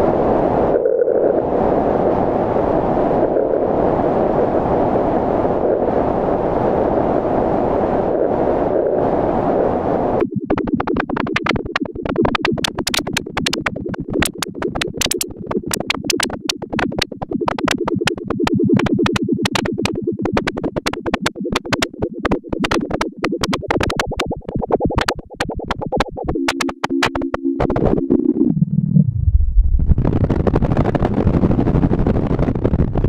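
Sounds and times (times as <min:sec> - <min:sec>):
synthesizer clicks and pulses: 0:10.1 - 0:29.7
steady two-note synth tone: 0:17.2 - 0:28.4.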